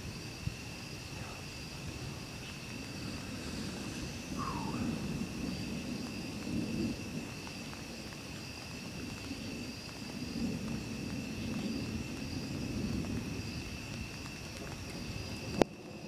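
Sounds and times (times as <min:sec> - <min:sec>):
distant thunder rumbling: 0:00.0 - 0:16.0
night insects trilling: 0:00.0 - 0:16.0.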